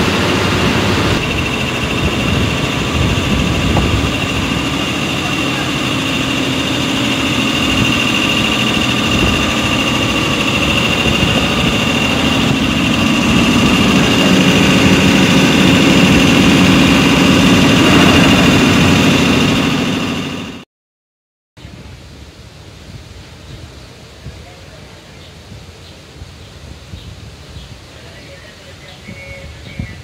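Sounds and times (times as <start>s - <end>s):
compressor mechanical drone: 0.0s - 20.6s
high whine: 0.0s - 20.6s.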